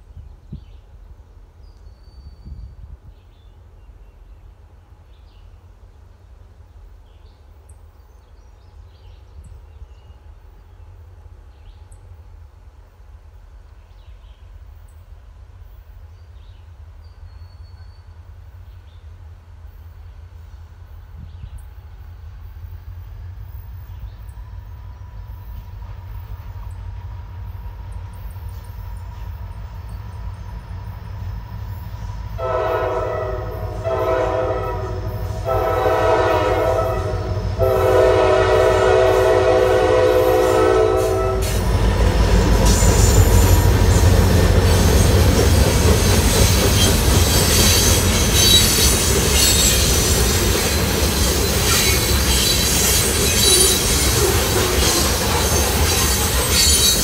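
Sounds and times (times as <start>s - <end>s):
train wheels rumbling and clattering: 8.6s - 57.0s
diesel locomotive rumble: 14.6s - 57.0s
locomotive air horn blasts: 32.4s - 41.7s
high-pitched wheel squeal: 46.2s - 57.0s.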